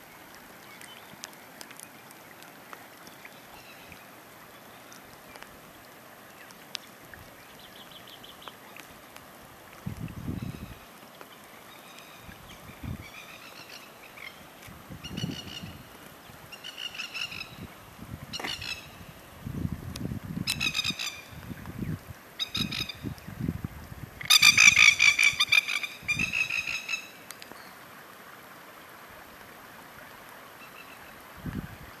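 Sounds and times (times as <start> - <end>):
rain hissing on water: 0.0 - 32.0.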